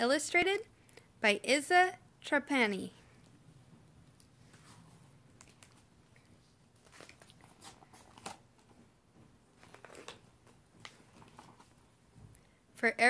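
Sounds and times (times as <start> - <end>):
book pages turning: 4.2 - 8.9, 9.5 - 11.8.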